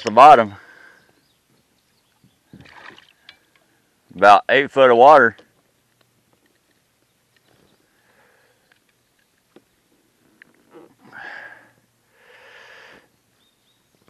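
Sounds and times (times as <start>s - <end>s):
person breathing close: 10.7s - 13.1s.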